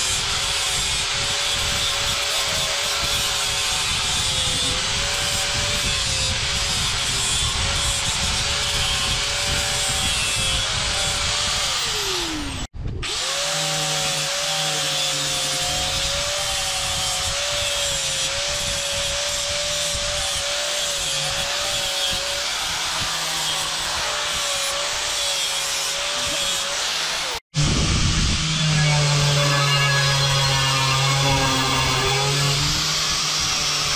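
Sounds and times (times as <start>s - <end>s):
angle grinder motor whine: 0.0s - 33.9s
grinding disc scraping metal: 28.1s - 33.9s.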